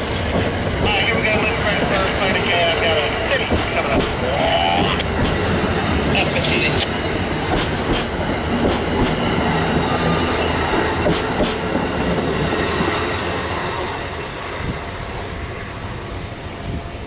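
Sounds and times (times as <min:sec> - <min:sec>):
train wheels clicking over rail joints: 0:00.0 - 0:05.7, 0:07.1 - 0:13.1
passing train rumble: 0:00.0 - 0:17.0.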